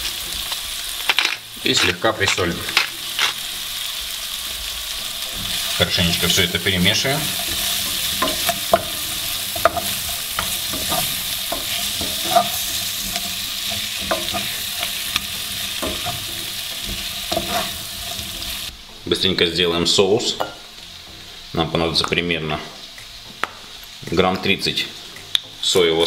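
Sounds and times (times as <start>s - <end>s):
vegetables sizzling in oil: 0.0s - 26.0s
spatula scraping a pan: 5.3s - 18.7s.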